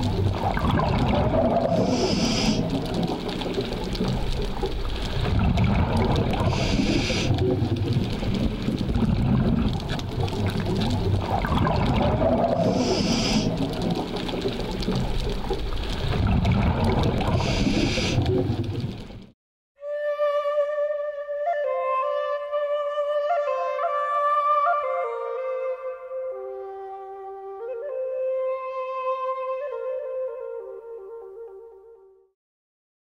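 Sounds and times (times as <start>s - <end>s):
exhaust bubbles bubbling: 0.0s - 19.3s
regulator hiss on inhale: 1.8s - 2.7s, 6.4s - 7.3s, 12.6s - 13.6s, 17.3s - 18.3s.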